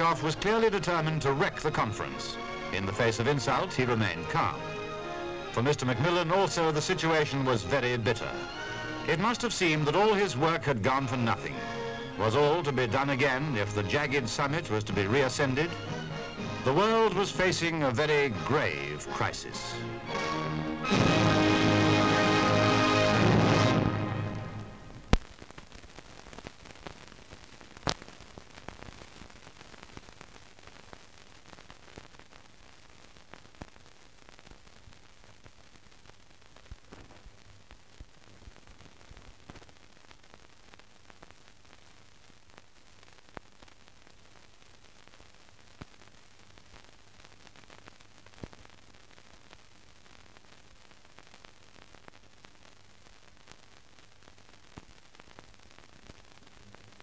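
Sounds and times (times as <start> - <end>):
film soundtrack hiss: 0.0 - 57.0
clicks and crackles: 25.0 - 57.0.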